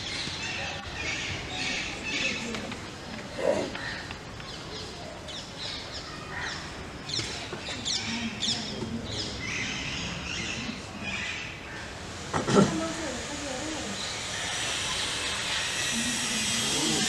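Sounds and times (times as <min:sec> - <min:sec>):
birds chirping: 0:00.0 - 0:12.2
outdoor background hum: 0:00.0 - 0:17.0.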